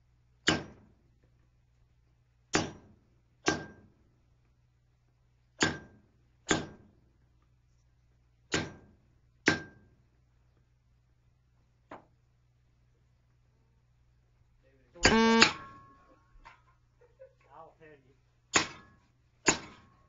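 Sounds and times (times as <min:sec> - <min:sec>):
hammer striking steel on anvil: 0:03.4 - 0:03.8, 0:05.6 - 0:05.9, 0:09.5 - 0:09.8, 0:18.6 - 0:19.8.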